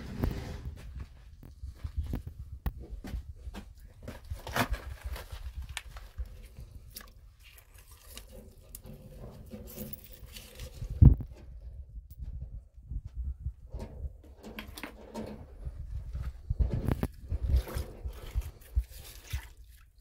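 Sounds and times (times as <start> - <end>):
hand digging through wet dirt: 4.3 - 9.0, 16.9 - 19.9.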